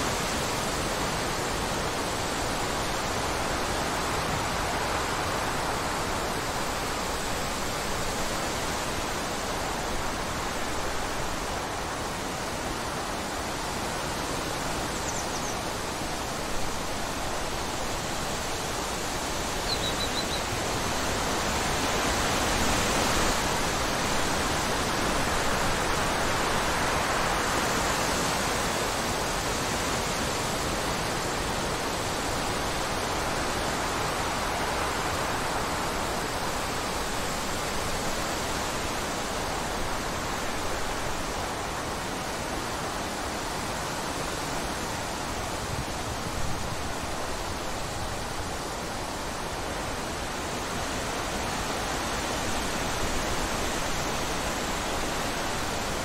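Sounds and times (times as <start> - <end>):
wind rushing through trees: 0.0 - 56.0
bird chirping: 15.0 - 15.6, 19.6 - 20.5.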